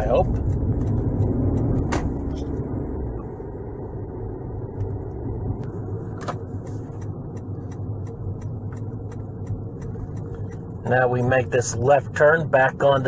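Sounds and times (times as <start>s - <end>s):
turn signal ticking: 0.0s - 3.4s, 6.4s - 13.0s
car engine and road rumble: 0.0s - 13.0s.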